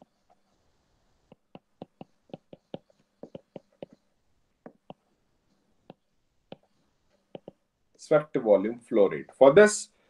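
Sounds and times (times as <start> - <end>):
stylus clicking on glass screen: 5.8 - 7.7.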